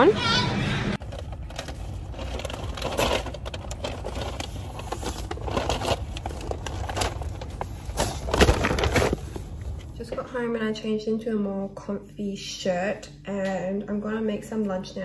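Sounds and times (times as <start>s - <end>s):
paper bags rustling: 1.0s - 10.0s.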